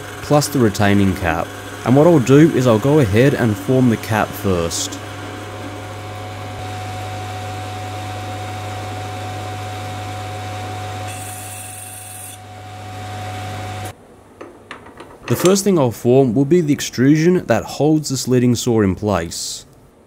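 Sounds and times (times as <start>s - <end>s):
lathe running with whine: 0.0s - 13.9s.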